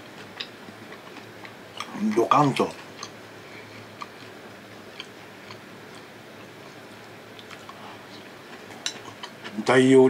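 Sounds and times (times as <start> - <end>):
mouth clicks while chewing: 3.0 - 3.2, 7.4 - 8.3.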